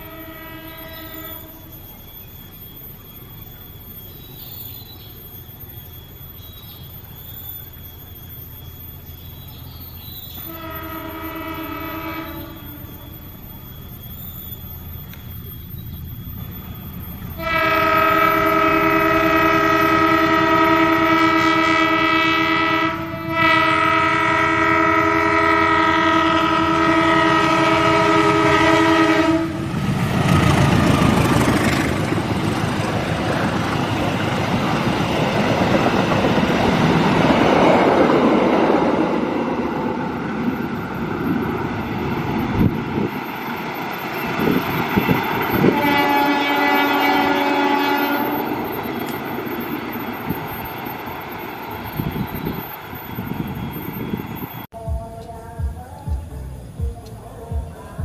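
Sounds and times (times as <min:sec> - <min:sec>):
locomotive air horn: 0:00.0 - 0:01.8, 0:10.4 - 0:13.2, 0:17.3 - 0:31.5, 0:44.4 - 0:49.2
train wheels clattering on rails: 0:29.6 - 0:46.7.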